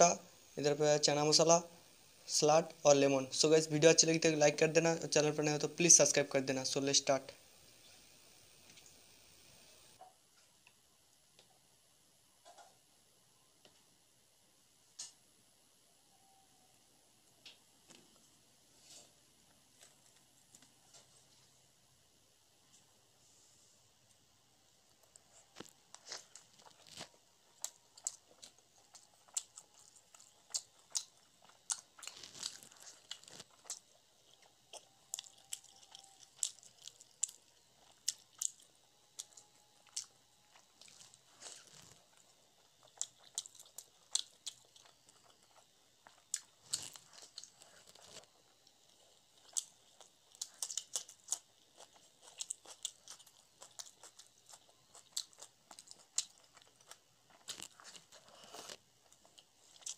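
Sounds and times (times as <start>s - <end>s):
close chewing with mouth clicks: 24.9s - 59.9s.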